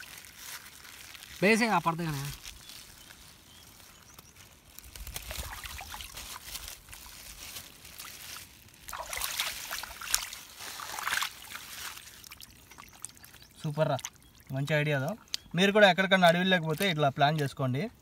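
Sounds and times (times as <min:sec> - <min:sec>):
water sloshing: 0:05.0 - 0:17.5
water splashes: 0:05.0 - 0:17.5
hands swishing chicken in water: 0:05.1 - 0:13.4.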